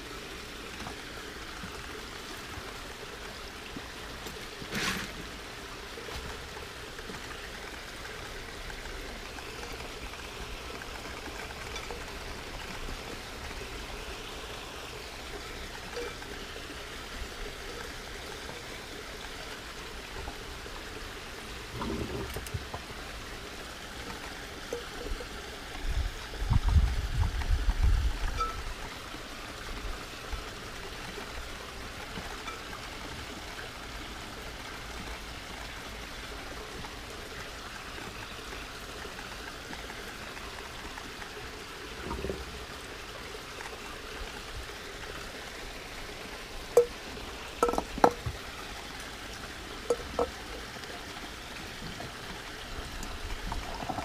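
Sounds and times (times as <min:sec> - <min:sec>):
water trickling: 0:00.0 - 0:54.0
rock clicking on glass: 0:47.6 - 0:48.3, 0:49.9 - 0:50.4.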